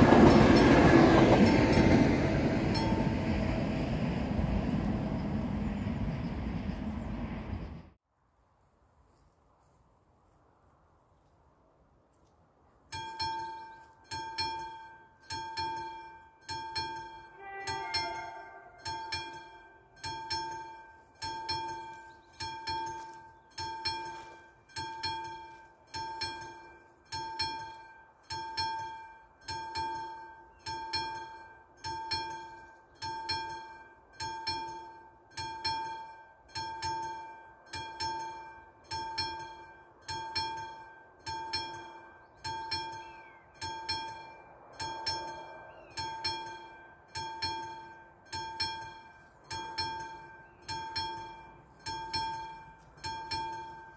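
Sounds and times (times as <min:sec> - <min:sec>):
level crossing bells ringing: 0:02.6 - 0:03.4, 0:12.9 - 0:53.9.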